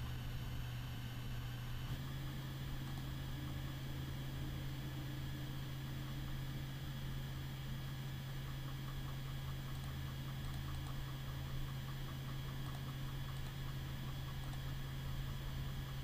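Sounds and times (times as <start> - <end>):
electrical hum and hiss: 0.0 - 16.0
faint mouse clicks: 8.4 - 14.8.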